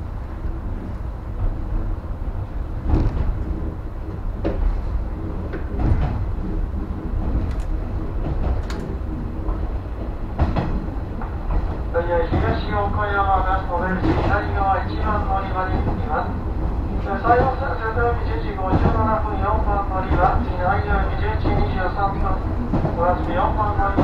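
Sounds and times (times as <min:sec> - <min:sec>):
train rumbling on track: 0:00.0 - 0:24.0
sharp clacks of train wheels: 0:05.4 - 0:12.8.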